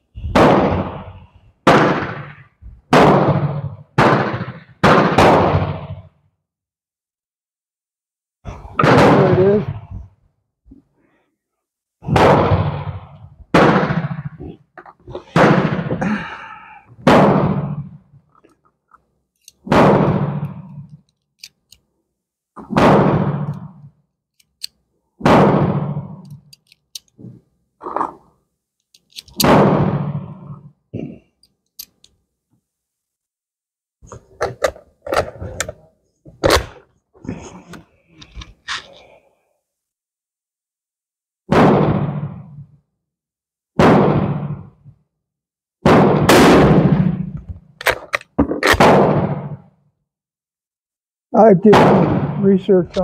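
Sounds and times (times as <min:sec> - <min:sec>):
gunshots with echo: 0:00.2 - 0:06.1, 0:08.8 - 0:10.0, 0:12.0 - 0:14.6, 0:15.2 - 0:16.4, 0:17.0 - 0:18.0, 0:19.6 - 0:20.9, 0:22.6 - 0:23.8, 0:25.2 - 0:26.2, 0:29.4 - 0:30.7, 0:41.5 - 0:42.7, 0:43.8 - 0:44.8, 0:45.8 - 0:47.4, 0:48.6 - 0:49.7, 0:51.6 - 0:53.0.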